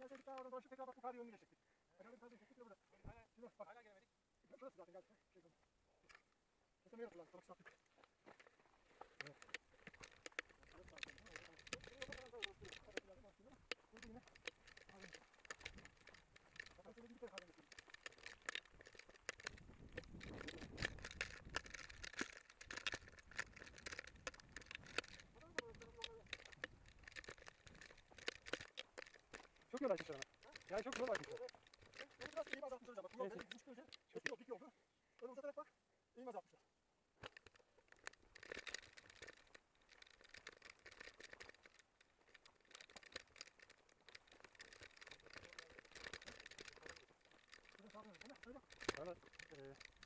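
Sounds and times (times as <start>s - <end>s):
bicycle clicks and rattles: 0.0s - 0.8s, 6.9s - 35.3s, 37.2s - 50.0s
footsteps on gravel: 7.4s - 33.7s
wind on microphone: 19.5s - 21.7s.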